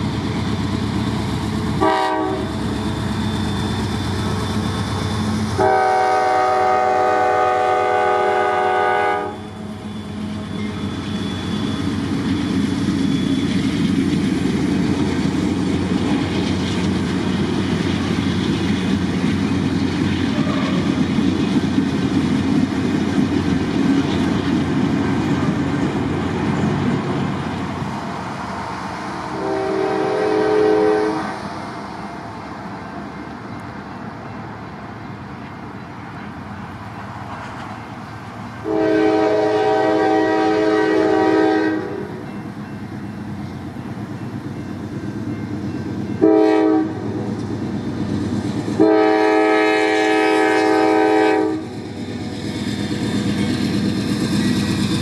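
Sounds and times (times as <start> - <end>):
railcar wheels rumbling and clattering: 0.0 - 55.0
locomotive air horn: 1.8 - 2.6, 5.6 - 9.5, 29.3 - 31.4, 38.6 - 42.2, 46.2 - 47.3, 48.8 - 51.7.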